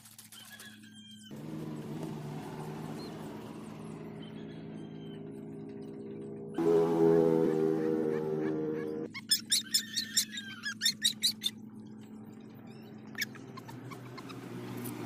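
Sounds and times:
puppy squeaking: 0:08.8 - 0:11.6, 0:12.6 - 0:15.0.

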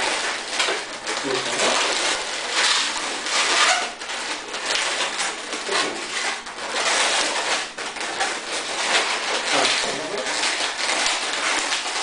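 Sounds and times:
balloons squeaking and rubbing: 0:00.0 - 0:12.0.

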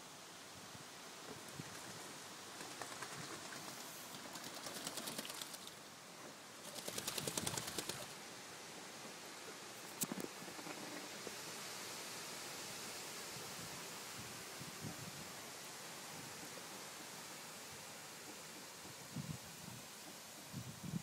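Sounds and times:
faint outdoor background noise: 0:00.0 - 0:21.0
bird wings flapping: 0:01.3 - 0:05.9, 0:06.6 - 0:08.2, 0:09.8 - 0:11.2.

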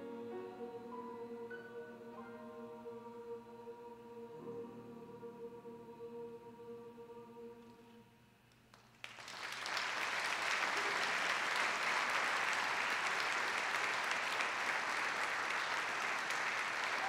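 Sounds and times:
choir chord: 0:00.0 - 0:08.2
audience applause: 0:08.7 - 0:17.0.

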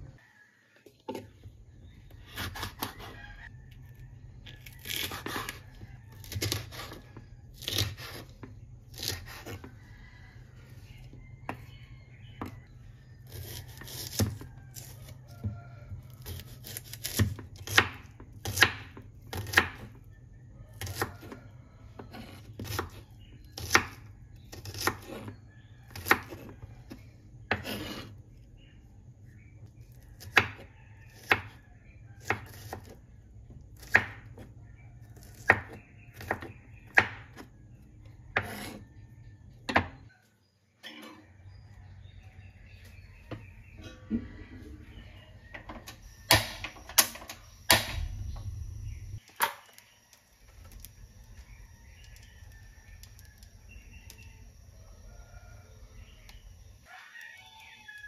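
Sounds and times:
knife chopping on wooden board: 0:06.2 - 0:09.7, 0:16.2 - 0:20.0, 0:22.0 - 0:25.3, 0:35.2 - 0:37.5, 0:38.3 - 0:38.8
low steady hum: 0:41.8 - 0:56.9.

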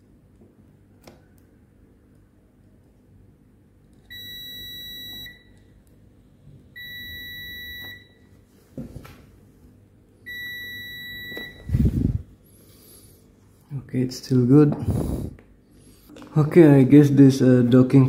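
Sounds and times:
multimeter continuity beep: 0:04.1 - 0:05.7, 0:06.8 - 0:08.3, 0:10.3 - 0:12.0.

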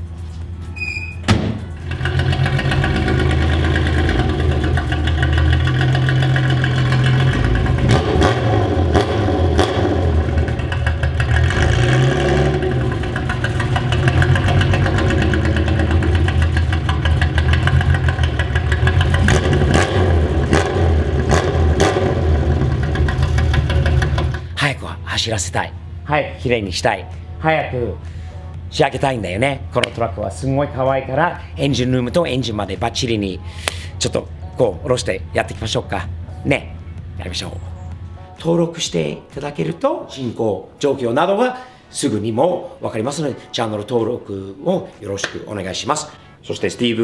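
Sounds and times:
car engine starting and revving: 0:01.7 - 0:24.6.

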